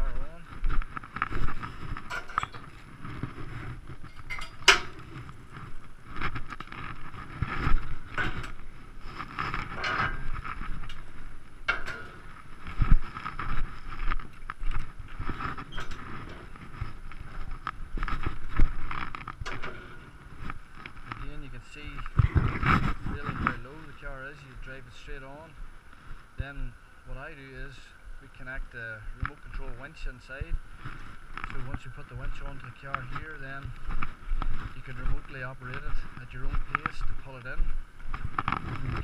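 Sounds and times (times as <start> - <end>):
footsteps on gravel: 0.1 - 24.3, 30.4 - 39.0
metal ramps scraping on gravel: 1.1 - 25.5.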